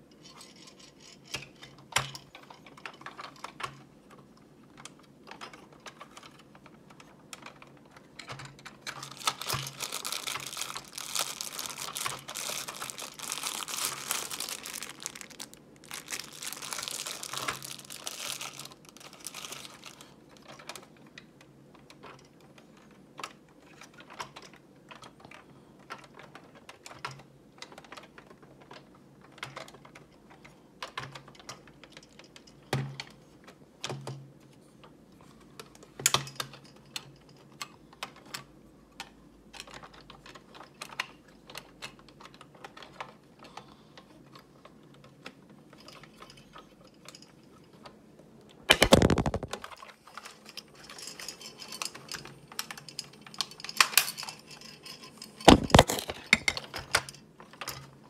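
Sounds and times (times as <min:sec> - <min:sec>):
plastic toy parts clicking: 0:04.8 - 0:22.3, 0:48.7 - 0:50.4, 0:51.8 - 0:57.9
plastic bag crinkling: 0:08.8 - 0:20.2, 0:48.7 - 0:49.8, 0:55.4 - 0:56.6.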